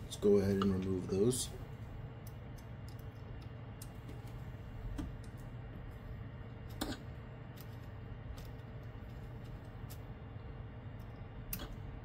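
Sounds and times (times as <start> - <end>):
steady low hum: 0.0 - 12.0
light clicks of small parts: 2.2 - 4.3.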